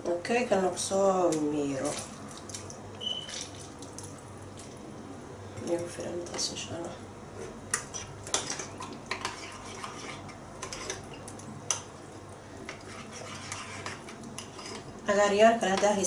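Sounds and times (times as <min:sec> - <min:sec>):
spoon stirring thick mixture: 0:07.4 - 0:16.0.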